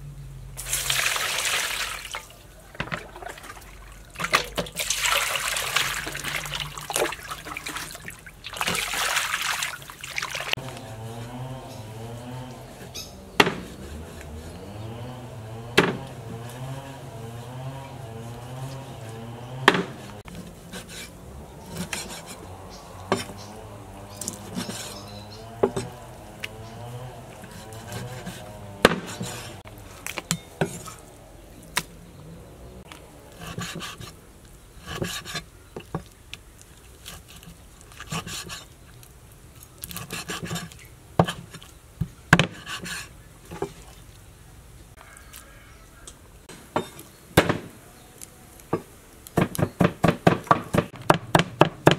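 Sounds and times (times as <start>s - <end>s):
low wavering hum: 10.5s - 20.3s
cleaver chopping on wooden board: 13.4s - 14.5s, 15.7s - 16.4s, 19.5s - 20.2s, 27.5s - 29.6s, 47.4s - 47.7s, 48.8s - 51.9s.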